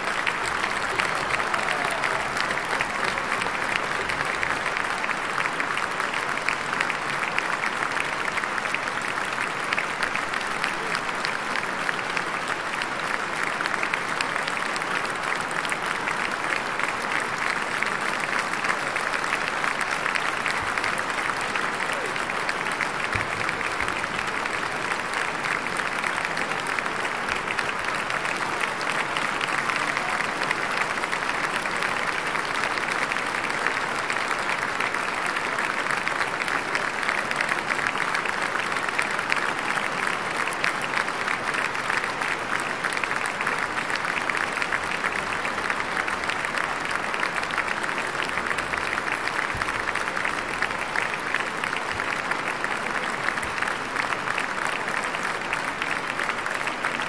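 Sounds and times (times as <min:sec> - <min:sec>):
audience applauding: 0:00.0 - 0:57.0.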